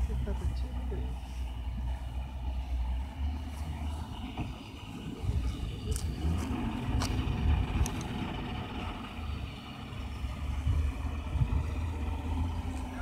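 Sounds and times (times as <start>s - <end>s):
outboard motor rumbling: 0.0s - 13.0s.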